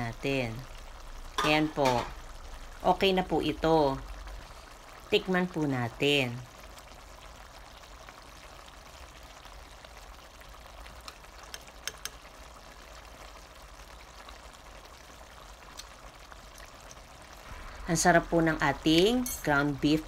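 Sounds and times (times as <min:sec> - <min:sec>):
stew simmering hiss: 0:00.0 - 0:20.0
metal spoon clicking on pan: 0:11.0 - 0:12.2.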